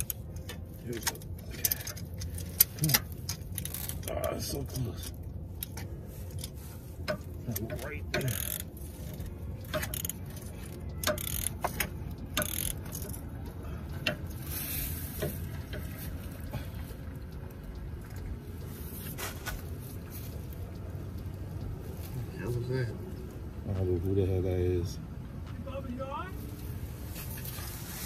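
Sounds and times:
ratchet clicking against metal: 0:00.0 - 0:16.0
low steady rumble: 0:00.0 - 0:28.0.

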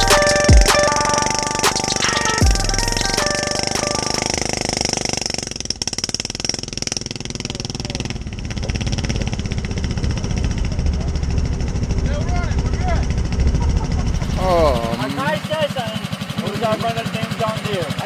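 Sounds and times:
music: 0:00.0 - 0:04.4
golf cart engine running: 0:00.0 - 0:18.0.

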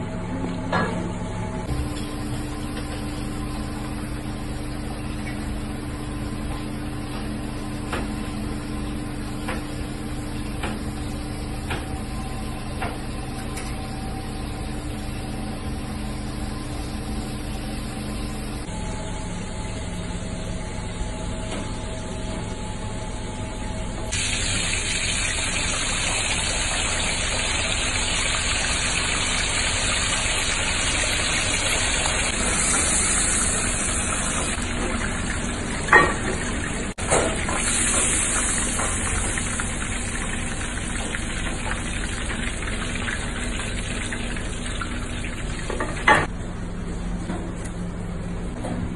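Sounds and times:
machine hum: 0:00.0 - 0:48.9
hot oil sizzling and bubbling: 0:24.1 - 0:46.3.

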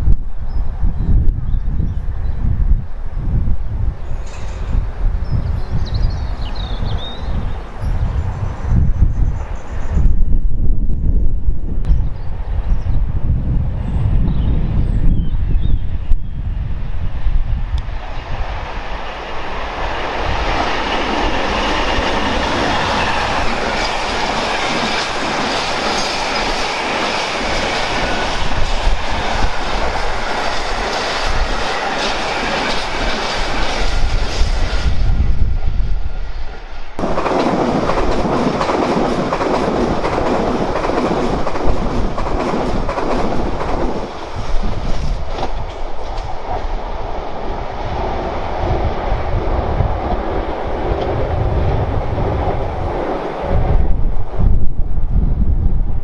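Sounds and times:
diesel locomotive engine: 0:16.0 - 0:56.0.

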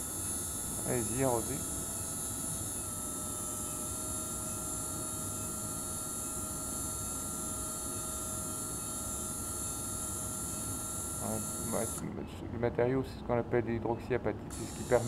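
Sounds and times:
surgical drill whine: 0:00.0 - 0:12.0.

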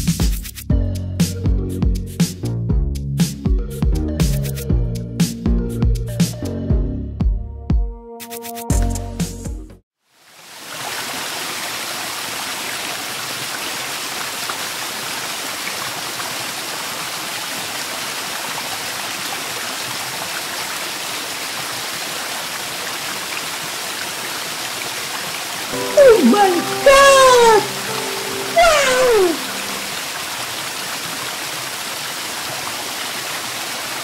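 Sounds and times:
fountain water splashing: 0:10.1 - 0:34.0.

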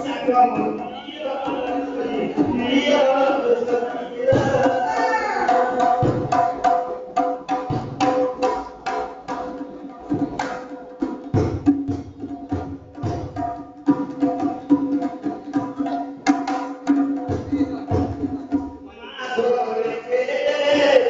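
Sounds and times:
men singing a chant: 0:00.0 - 0:06.5, 0:18.9 - 0:21.0.

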